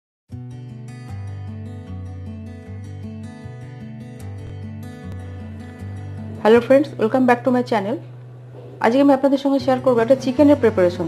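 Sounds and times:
intro music with steady bass line: 0:04.2 - 0:06.6.

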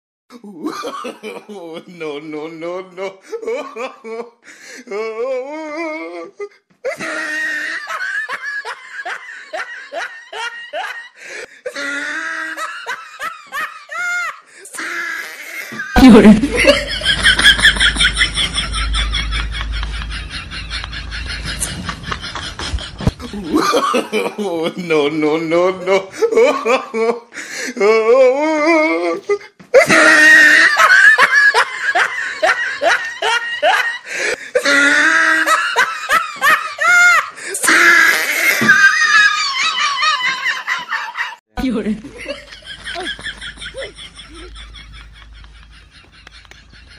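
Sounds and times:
person laughing: 0:03.0 - 0:25.0, 0:27.9 - 0:46.9.

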